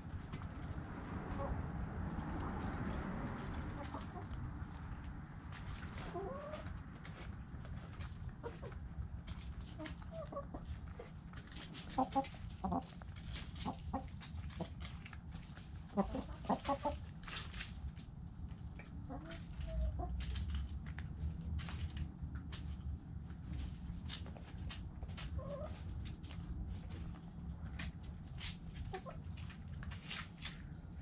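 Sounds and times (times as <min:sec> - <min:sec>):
steady low rumble: 0:00.0 - 0:31.0
hens clucking: 0:00.2 - 0:17.7, 0:18.5 - 0:20.5, 0:23.4 - 0:30.6.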